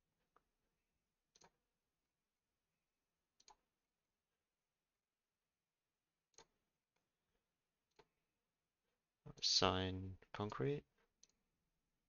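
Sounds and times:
computer mouse clicks: 0:01.3 - 0:01.6, 0:03.4 - 0:03.6, 0:06.3 - 0:06.6, 0:10.4 - 0:11.4.

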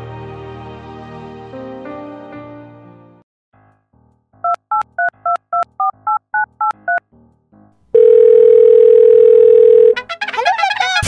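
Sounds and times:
steady phone line tone: 0:08.0 - 0:10.0.

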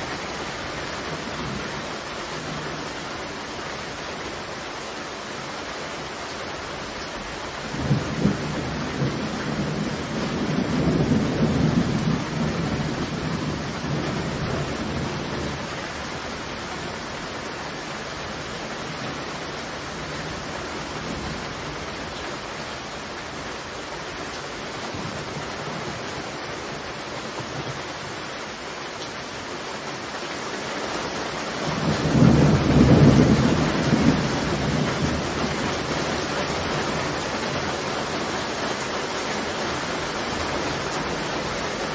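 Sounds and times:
heavy rain falling: 0:00.0 - 0:41.9
thunder rolling: 0:07.8 - 0:15.7, 0:31.7 - 0:36.2.

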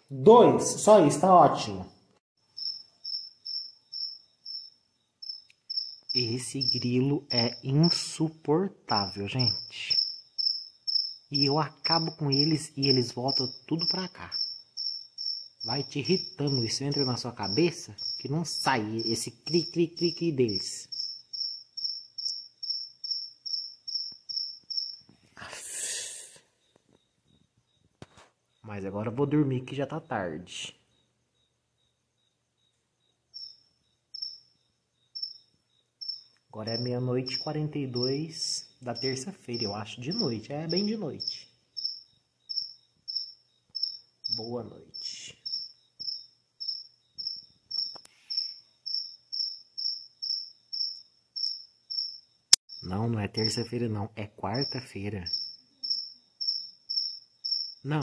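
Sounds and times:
cricket chirping: 0:00.0 - 0:58.0.

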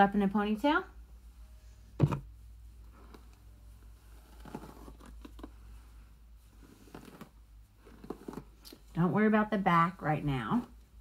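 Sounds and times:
loud thump: 0:02.0 - 0:02.3.

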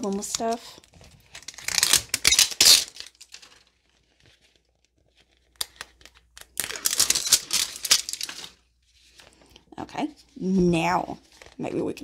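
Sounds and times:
plastic wrapping crinkling and tearing: 0:00.0 - 0:09.6.

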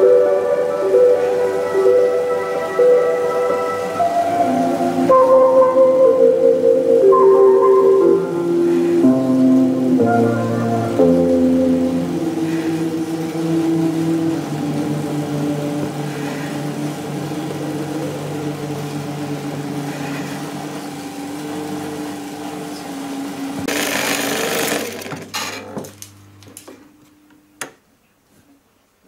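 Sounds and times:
film projector running: 0:17.1 - 0:26.1.

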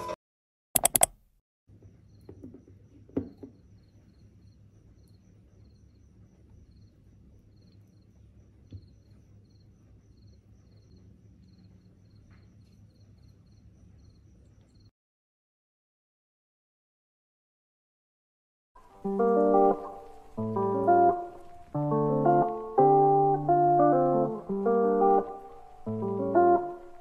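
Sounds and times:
faint insect chirping: 0:01.8 - 0:14.9.

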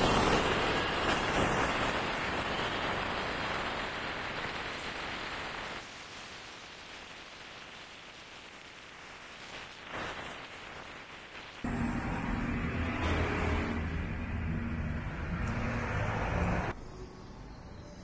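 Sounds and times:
motorcycle road noise: 0:11.7 - 0:16.7.

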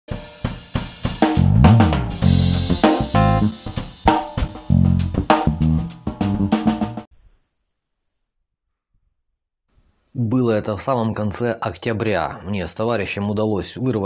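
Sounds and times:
drum-led intro music: 0:00.1 - 0:07.1.

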